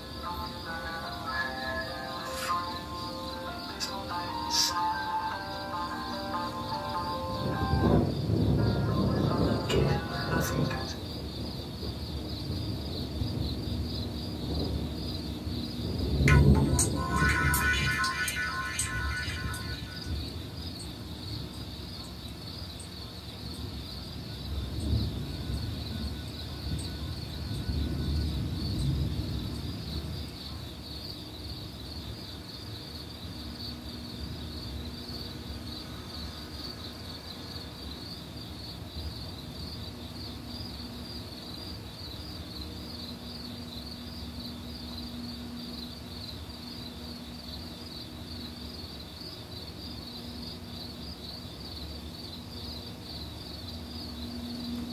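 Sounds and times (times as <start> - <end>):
night insects chirping: 0.0 - 54.9
thunder rumbling: 6.1 - 20.6, 24.5 - 30.3.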